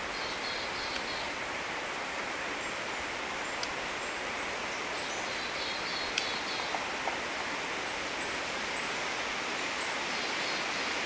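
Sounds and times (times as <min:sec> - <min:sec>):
woodland ambience hiss: 0:00.0 - 0:11.0
sharp tick: 0:06.1 - 0:06.3.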